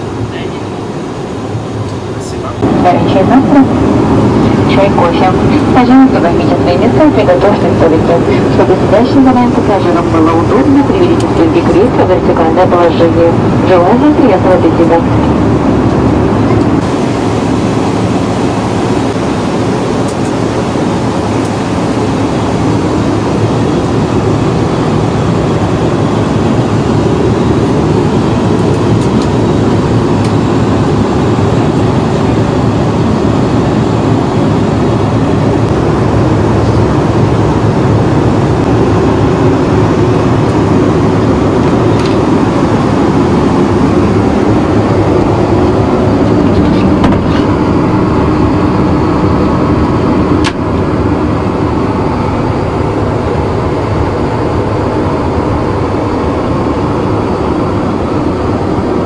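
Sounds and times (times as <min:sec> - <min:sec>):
airplane cabin noise: 0:00.0 - 0:59.0.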